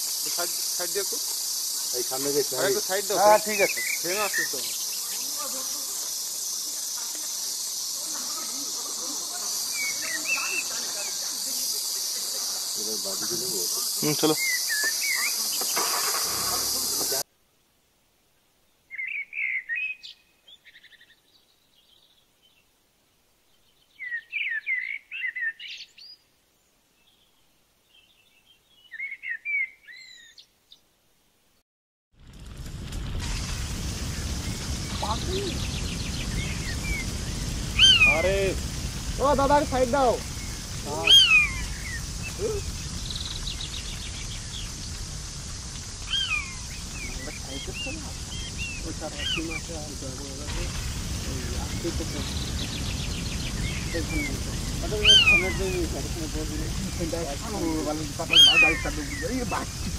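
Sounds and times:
insect chorus droning: 0.0s - 17.3s, 32.7s - 59.9s
small bird whistling song: 14.4s - 15.8s, 18.9s - 21.2s, 23.8s - 26.2s, 27.9s - 30.4s, 37.8s - 38.2s, 41.1s - 42.4s, 46.1s - 47.2s, 55.0s - 55.6s.

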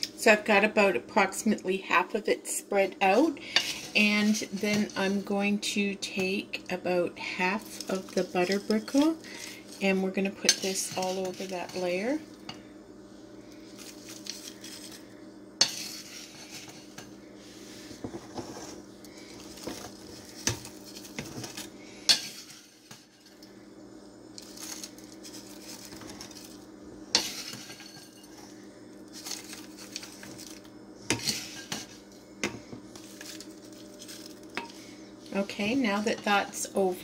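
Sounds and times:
rustle of crumbs: 7.4s - 12.4s, 13.1s - 23.6s, 24.3s - 36.6s.

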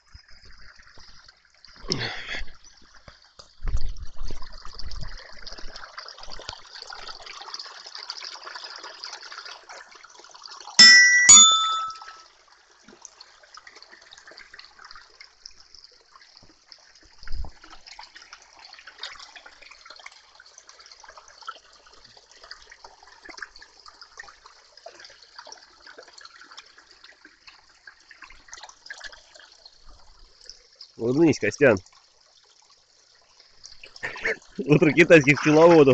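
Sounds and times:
stream trickling over stones: 0.0s - 35.9s
sharp ringing tones: 10.8s - 12.2s.

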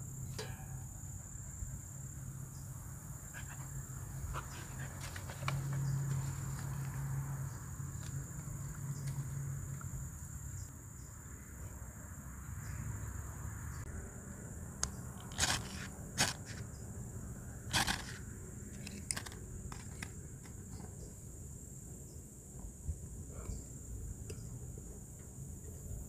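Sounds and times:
insects droning: 0.0s - 26.0s
ferro rod scraping: 15.2s - 16.6s.

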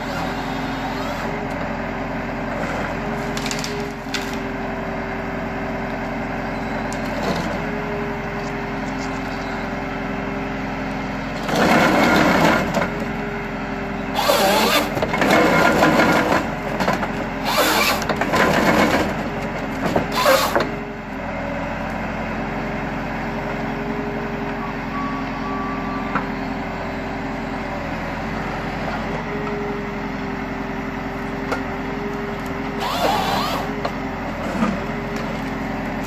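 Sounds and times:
harvester head processing a tree: 0.0s - 23.7s, 27.5s - 36.0s
tractor engine and hydraulics: 0.0s - 36.0s.

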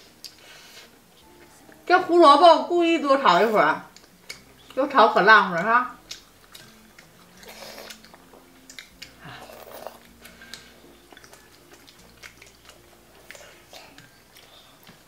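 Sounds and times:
chewing soft bun: 3.8s - 4.9s, 5.5s - 15.0s
chopsticks clicking on bowls: 5.6s - 9.2s.

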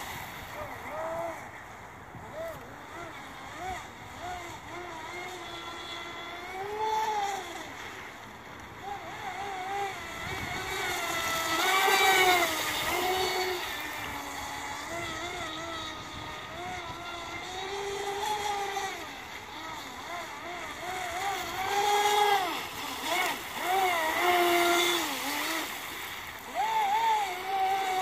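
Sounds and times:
electric boat motor whining: 0.0s - 28.0s.

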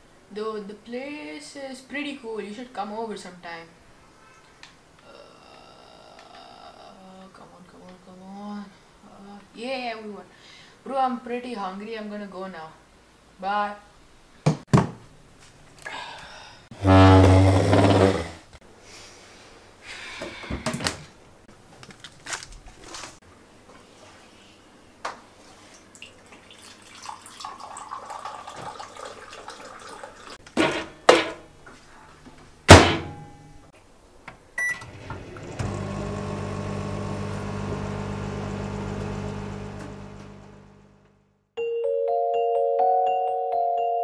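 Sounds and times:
chair scraping on wooden floor: 16.8s - 18.5s
water pouring into a cup: 25.9s - 30.4s
sharp clunks: 32.7s - 33.4s
microwave oven humming: 34.6s - 41.2s.

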